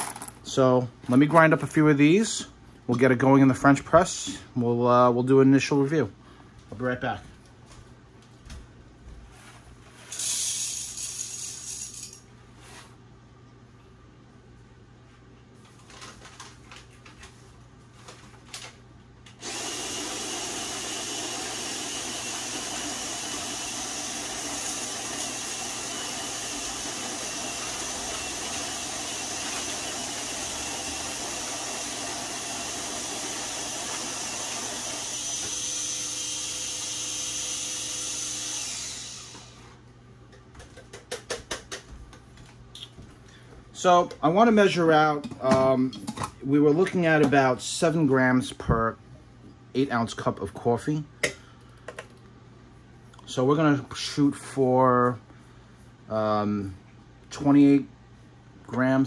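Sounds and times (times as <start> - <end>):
coffee grinder motor whirring: 10.1 - 11.9, 19.3 - 39.7.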